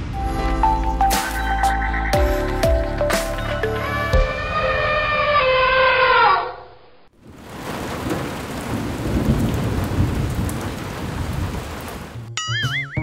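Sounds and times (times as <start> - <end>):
low rumbling thunder: 7.2 - 12.1
heavy rain falling: 7.2 - 12.3.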